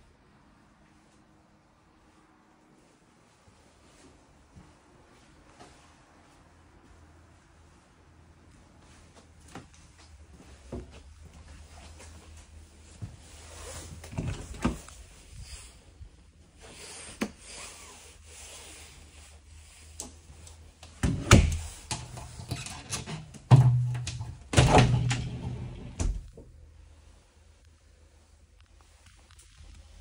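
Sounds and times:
doors clicking and knocking: 21.0 - 26.3
shower door rattling and rubbing: 21.0 - 26.4.

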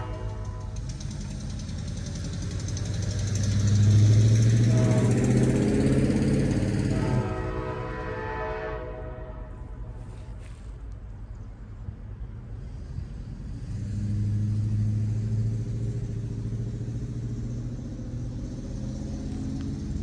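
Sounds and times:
train air horn: 0.0 - 1.0, 4.4 - 10.4
diesel locomotive engine rumble: 0.0 - 20.0.

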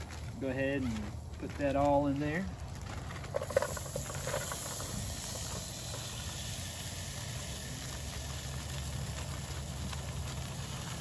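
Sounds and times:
vegetables sizzling in a pot: 3.3 - 11.0.

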